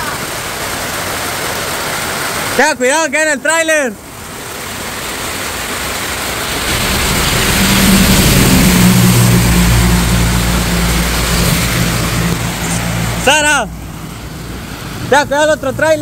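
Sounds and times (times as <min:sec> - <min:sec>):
heavy rain pouring: 0:00.0 - 0:02.7, 0:04.0 - 0:15.2
truck engine drone: 0:04.0 - 0:16.0.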